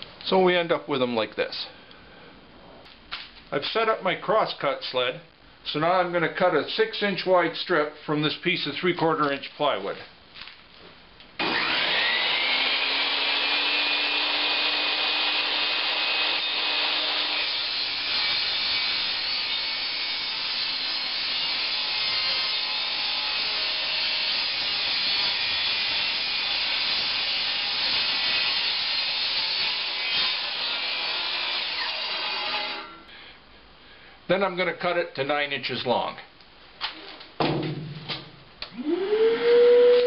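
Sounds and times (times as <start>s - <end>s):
saw blade cutting plywood: 11.4s - 33.0s
table saw running: 11.4s - 33.0s.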